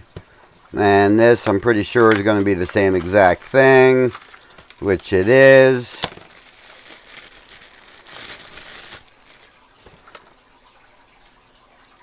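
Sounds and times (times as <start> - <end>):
plastic bag crinkling: 1.8 - 10.4.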